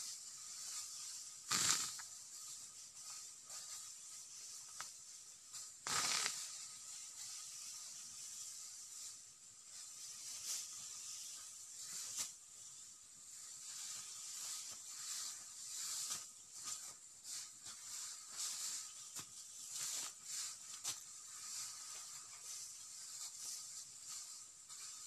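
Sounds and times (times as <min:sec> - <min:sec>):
steady high hiss: 0:00.0 - 0:25.0
dry grass rustling: 0:13.4 - 0:25.0.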